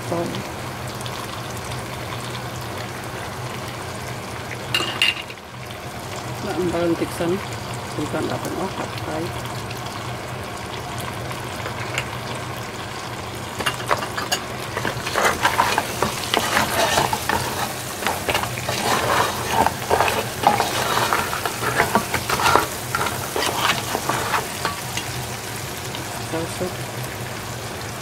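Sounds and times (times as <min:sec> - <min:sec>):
crab sizzling in a pan: 0:00.0 - 0:28.0
wooden spatula scraping a pan: 0:13.5 - 0:25.3.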